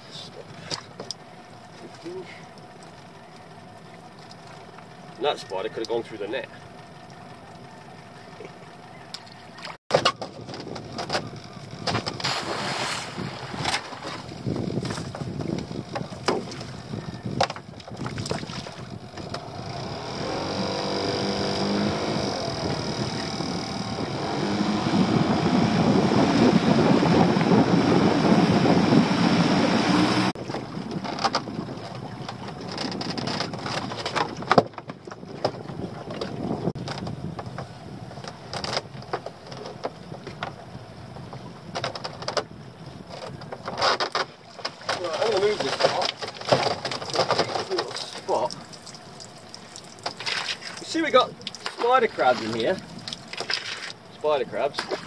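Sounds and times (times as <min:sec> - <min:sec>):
outboard motor running: 0:00.0 - 0:55.0
ropes knocking and rattling: 0:09.9 - 0:12.4, 0:17.4 - 0:18.6, 0:31.0 - 0:40.6, 0:43.1 - 0:54.0.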